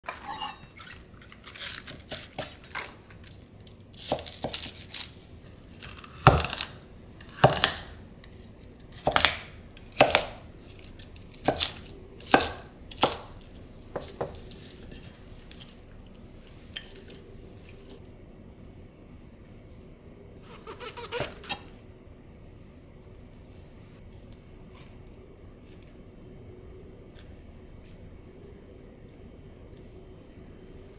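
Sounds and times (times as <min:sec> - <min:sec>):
knife slicing crisp cabbage: 0:01.2 - 0:03.0, 0:03.9 - 0:13.4.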